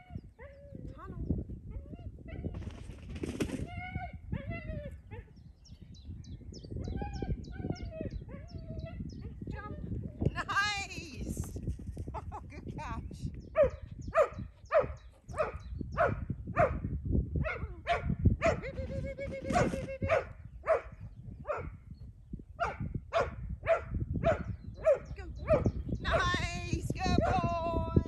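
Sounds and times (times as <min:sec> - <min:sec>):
dog barking: 0:13.6 - 0:16.8, 0:17.4 - 0:18.6, 0:19.5 - 0:20.9, 0:21.5 - 0:21.7, 0:22.6 - 0:25.8.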